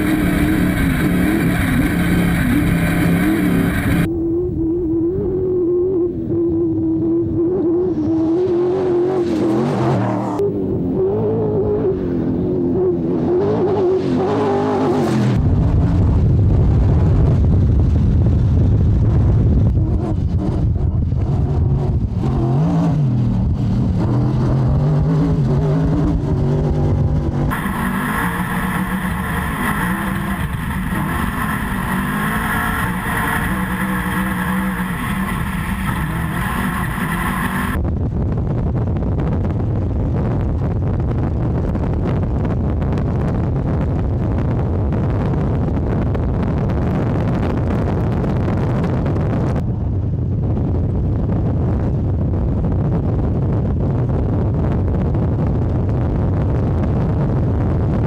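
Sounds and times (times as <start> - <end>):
rushing noise: 0.0 - 4.2, 7.9 - 50.4
race truck engine revving: 0.0 - 17.4, 19.0 - 37.8.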